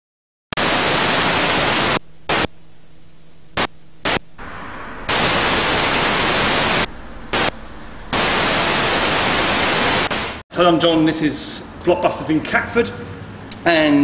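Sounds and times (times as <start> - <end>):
video tape static hiss: 0.6 - 10.4
low hum: 1.8 - 10.4.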